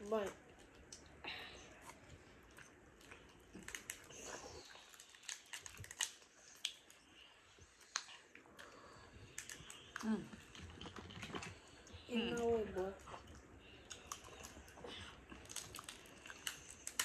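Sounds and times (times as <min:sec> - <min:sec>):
people chewing and eating: 0:00.0 - 0:17.0
shells cracking and peeling: 0:03.0 - 0:07.1, 0:07.8 - 0:11.7, 0:15.3 - 0:17.0.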